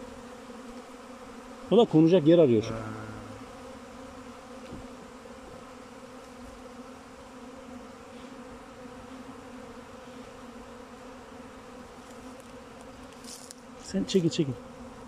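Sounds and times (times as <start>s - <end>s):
swarm of bees buzzing: 0.0s - 15.0s.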